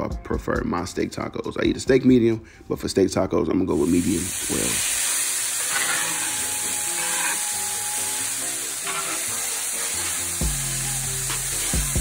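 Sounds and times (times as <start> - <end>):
steak sizzling in oil: 3.8 - 12.0
spatula stirring in skillet: 4.8 - 12.0.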